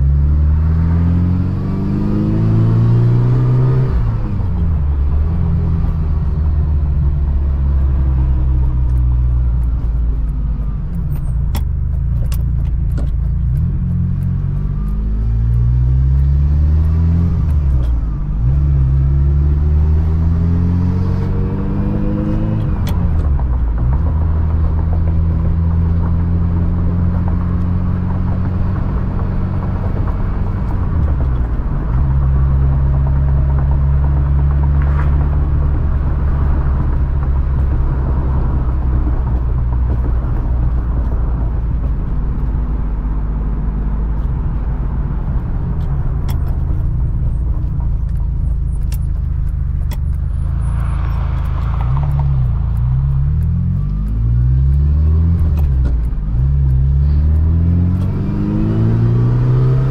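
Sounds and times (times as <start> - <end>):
car accelerating through gears: 0.0 - 10.6, 12.4 - 59.9
car engine cruising: 0.0 - 59.9.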